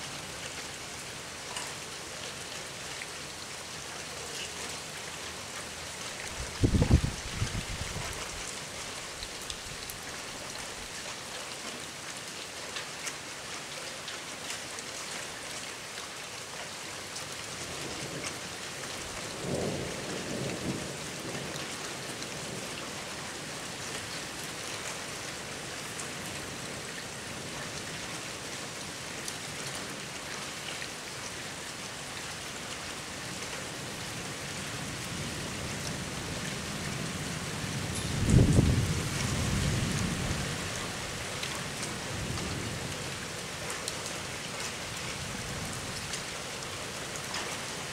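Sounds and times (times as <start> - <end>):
heavy rain falling: 0.0 - 47.9
low rumble of thunder: 6.3 - 8.3, 38.1 - 40.8.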